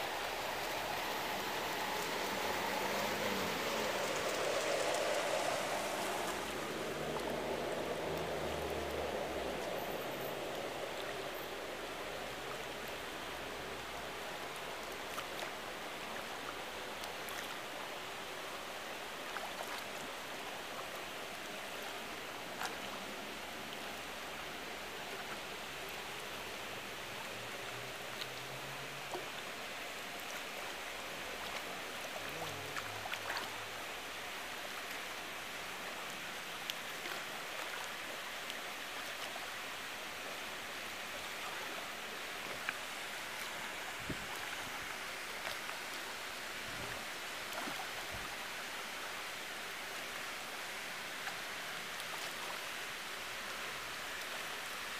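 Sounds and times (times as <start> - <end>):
rushing pool water: 0.0 - 54.9
small splashes: 28.0 - 35.2, 41.0 - 48.8.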